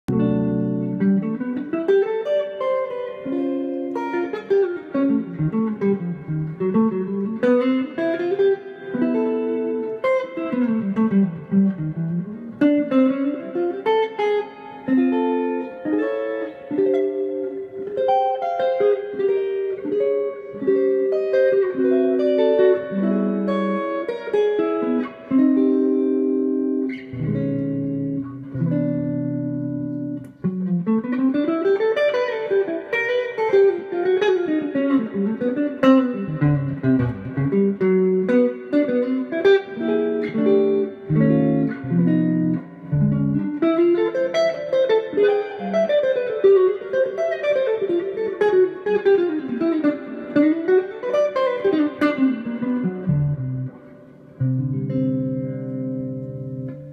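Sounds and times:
electric guitar playing: 0:00.0 - 0:56.9.

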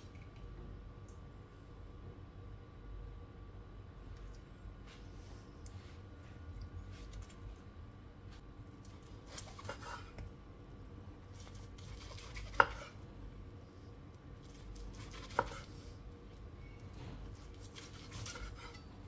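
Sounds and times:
knife slicing meat on board: 0:09.3 - 0:10.2, 0:11.4 - 0:13.0, 0:14.4 - 0:15.8, 0:17.4 - 0:18.9.

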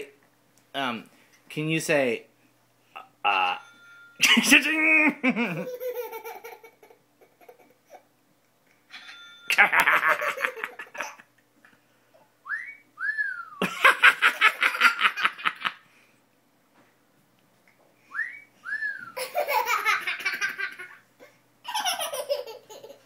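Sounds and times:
toddler belly laughter: 0:05.4 - 0:08.1, 0:09.5 - 0:11.4, 0:19.2 - 0:23.0.

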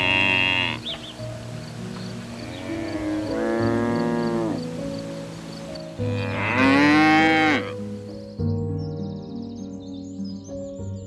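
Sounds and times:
cow mooing: 0:00.0 - 0:00.9, 0:02.3 - 0:04.6, 0:06.0 - 0:07.8
birds chirping: 0:00.0 - 0:11.0
soft background music: 0:00.0 - 0:11.0.

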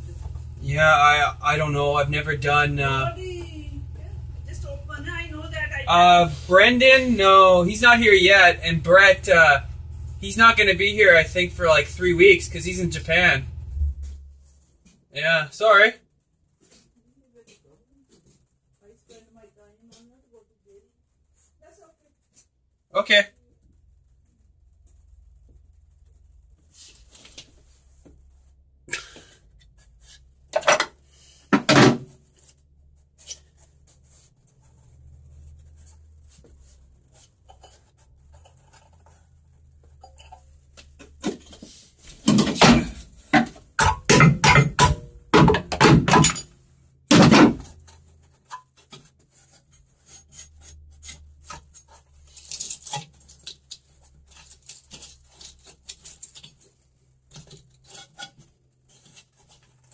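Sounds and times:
low steady hum: 0:00.0 - 0:59.9
metal objects clanking: 0:30.5 - 0:31.0, 0:39.9 - 0:49.1.

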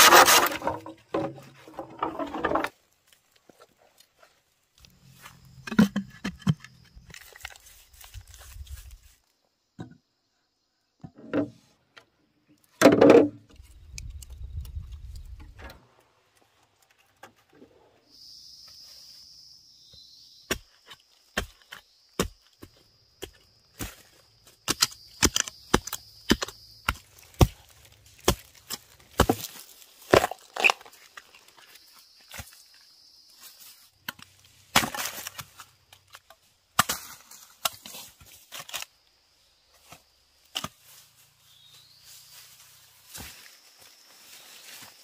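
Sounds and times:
blade chopping bamboo: 0:00.0 - 0:01.3, 0:24.7 - 0:30.9, 0:36.8 - 0:38.9.

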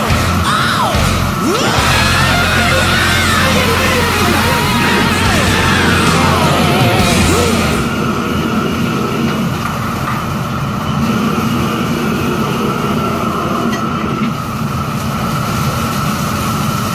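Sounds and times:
extractor hood humming: 0:00.0 - 0:09.6
gas burner rushing: 0:00.0 - 0:16.9.

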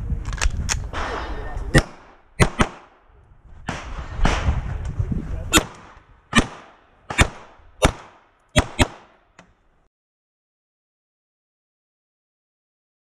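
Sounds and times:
pistol shots: 0:00.9 - 0:03.0, 0:05.5 - 0:09.2.

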